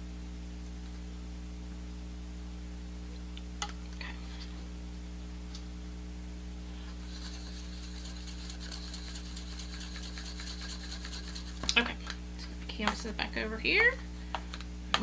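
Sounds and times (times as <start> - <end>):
stick stirring paint in a cup: 6.8 - 11.9.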